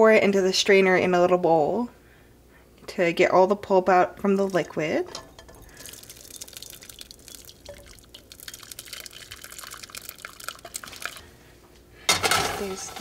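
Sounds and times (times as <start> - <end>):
juice trickling into strainer: 4.4 - 11.4.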